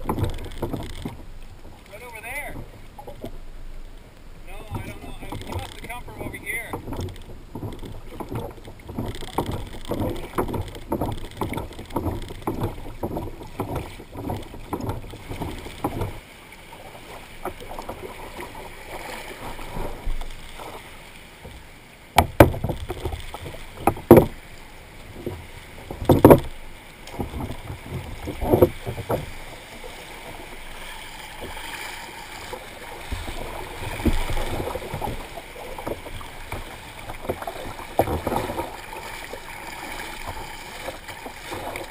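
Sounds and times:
sharp knocks on hull: 0.0 - 3.4, 4.5 - 16.2, 21.4 - 24.5, 25.1 - 29.5, 32.4 - 41.9
water slapping a kayak hull: 0.0 - 41.9.

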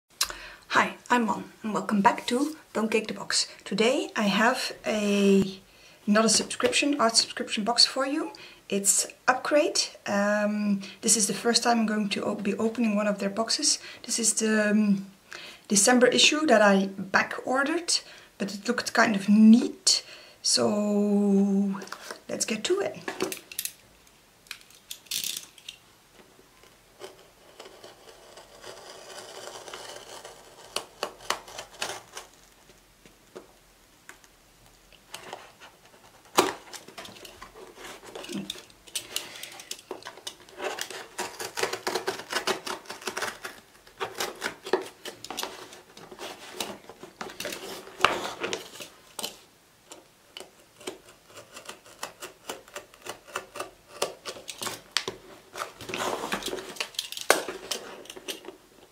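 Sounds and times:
utility knife cutting cardboard: 27.0 - 32.3, 40.5 - 45.4, 50.8 - 54.8
box handling noise: 35.1 - 49.4, 54.1 - 58.9.

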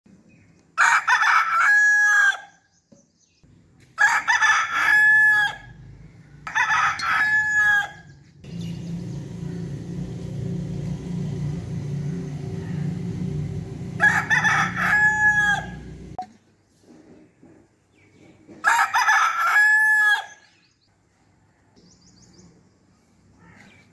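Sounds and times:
rooster crowing: 0.8 - 2.5, 4.0 - 5.8, 6.4 - 8.1, 11.0 - 16.2, 18.6 - 20.4
steady low hum: 8.4 - 16.2.

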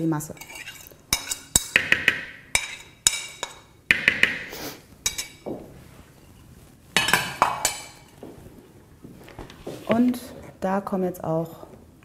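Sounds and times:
fork clinking and scraping on plate: 0.4 - 5.4, 7.0 - 8.1.

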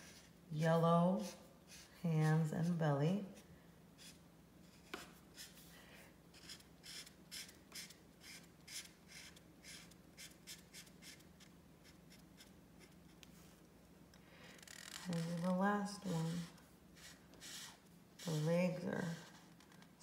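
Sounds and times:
marker scratching on paper: 1.2 - 3.4, 4.0 - 5.7, 6.4 - 13.2, 15.0 - 19.6.

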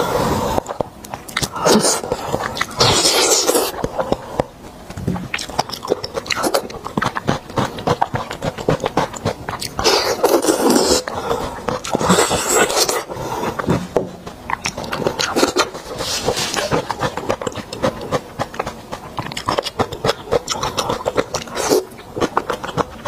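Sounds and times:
wet chewing and mouth clicks: 0.5 - 23.0
loud slurps: 1.4 - 3.8, 6.3 - 13.8.

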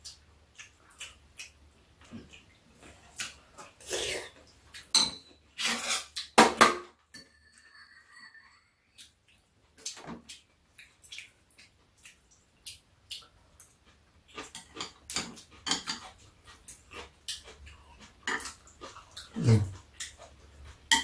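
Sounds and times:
chewing: 0.1 - 4.9, 8.9 - 21.0
slurping: 18.5 - 19.9.

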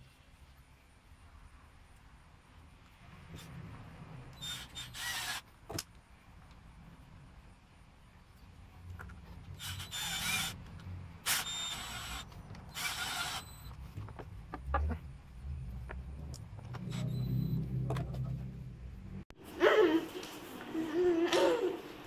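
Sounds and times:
cordless drill driving screws: 4.4 - 5.4, 9.6 - 10.6, 11.2 - 13.7.

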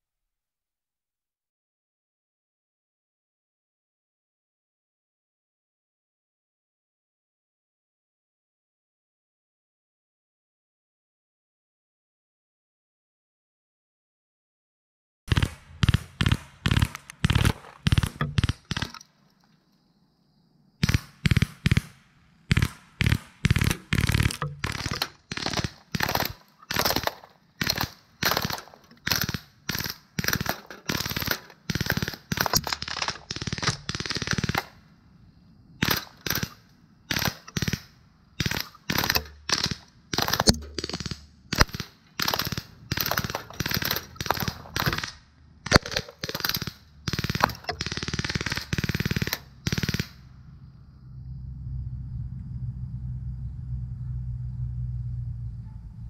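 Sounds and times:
pellet gun shots: 15.3 - 19.0, 20.8 - 34.8, 35.8 - 50.3.

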